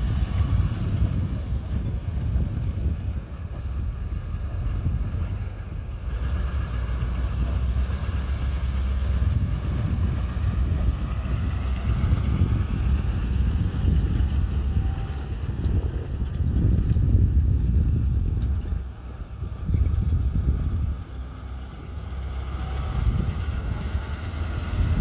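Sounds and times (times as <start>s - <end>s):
truck engine rumbling: 0.0s - 25.0s.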